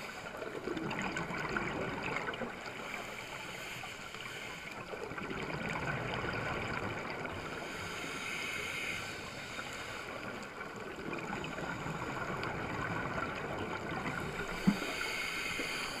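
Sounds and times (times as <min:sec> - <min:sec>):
underwater rushing hiss: 0:02.6 - 0:04.9, 0:06.0 - 0:16.0.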